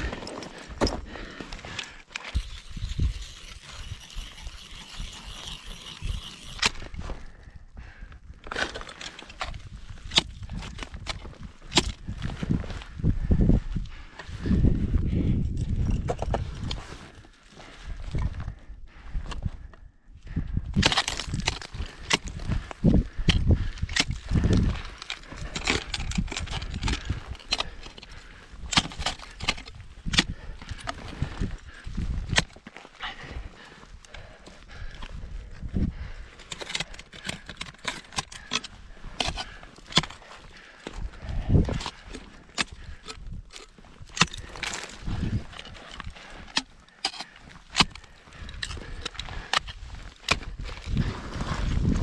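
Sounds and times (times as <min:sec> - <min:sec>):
ice axe striking ice: 0:02.2 - 0:06.8, 0:20.8 - 0:22.4
ice axes striking ice: 0:02.2 - 0:06.8, 0:20.8 - 0:22.4, 0:24.9 - 0:30.8, 0:41.6 - 0:51.0.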